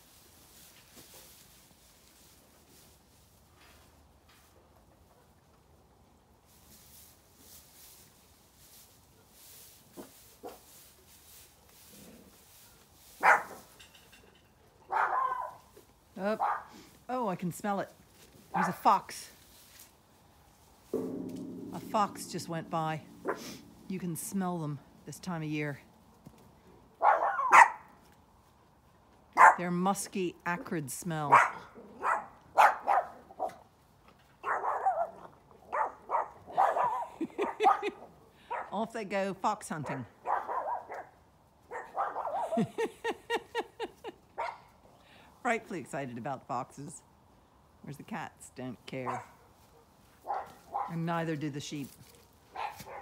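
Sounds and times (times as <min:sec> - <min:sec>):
dogs barking: 0:13.2 - 0:13.6, 0:14.9 - 0:15.6, 0:27.0 - 0:27.8, 0:31.3 - 0:33.5, 0:34.4 - 0:38.7, 0:40.2 - 0:41.1, 0:41.7 - 0:42.6, 0:49.1 - 0:50.9, 0:52.5 - 0:53.0.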